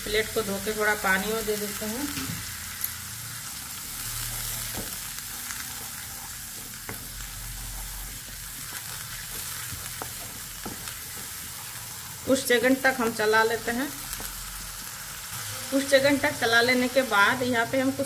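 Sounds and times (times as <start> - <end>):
onion paste sizzling in oil: 0.0 - 18.0
spatula knocking and scraping pan: 7.8 - 11.6.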